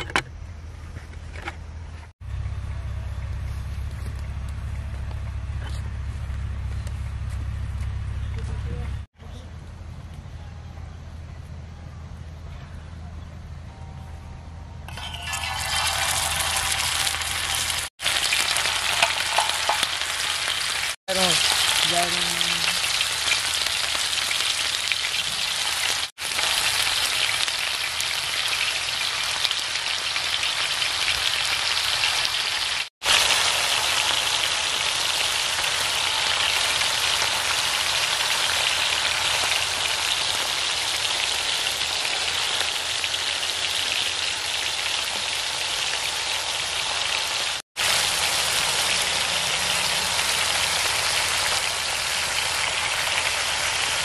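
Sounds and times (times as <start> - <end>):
patties sizzling in oil: 14.9 - 54.0.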